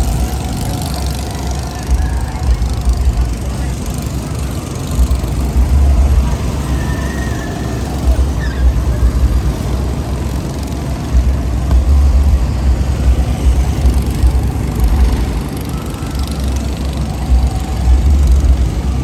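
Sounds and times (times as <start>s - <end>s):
go-kart engines: 0.0s - 19.0s
low rumble: 5.0s - 19.0s.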